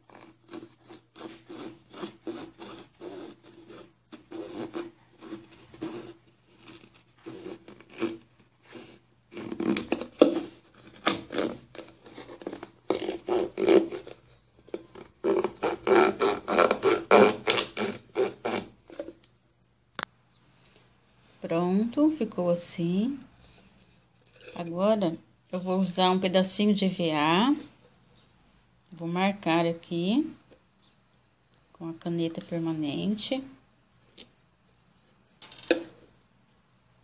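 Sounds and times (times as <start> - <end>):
knife sawing plastic bottle: 0.0 - 14.3, 14.9 - 19.2.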